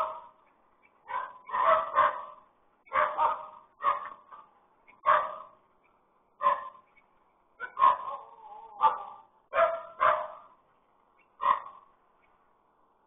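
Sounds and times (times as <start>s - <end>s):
dog barking: 0.0s - 0.4s, 1.0s - 5.6s, 6.4s - 6.8s, 7.6s - 10.6s, 11.4s - 11.9s.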